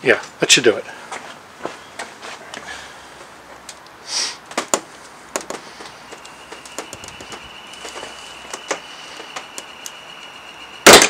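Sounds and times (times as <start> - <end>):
sharp clicks and plastic knocks: 4.5 - 7.4.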